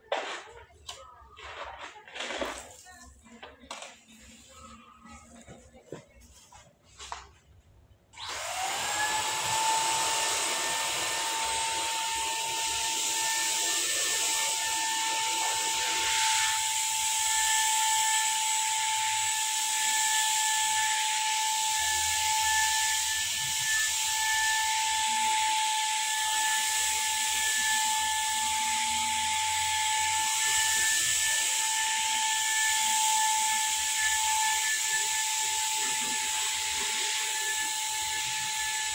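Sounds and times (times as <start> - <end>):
paint spray gun whining: 8.2 - 38.9.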